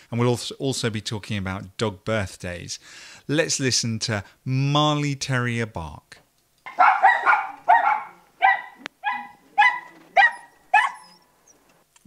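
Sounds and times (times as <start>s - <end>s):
dog barking sharply: 6.7s - 11.2s
second dog barking: 6.7s - 11.2s.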